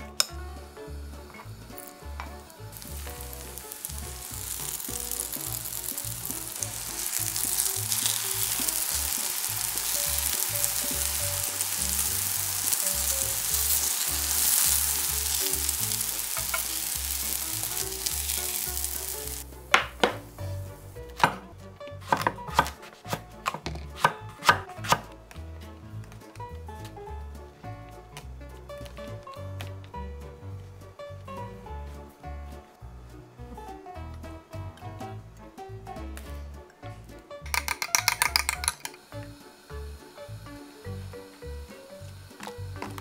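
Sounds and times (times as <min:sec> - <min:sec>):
pancakes sizzling in oil: 0:00.7 - 0:19.5, 0:37.5 - 0:43.0.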